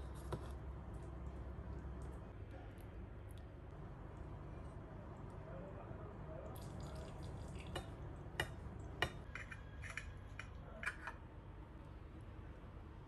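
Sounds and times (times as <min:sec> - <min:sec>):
faint low hum: 0:00.0 - 0:13.0
knife scraping on a ceramic plate: 0:09.0 - 0:11.2.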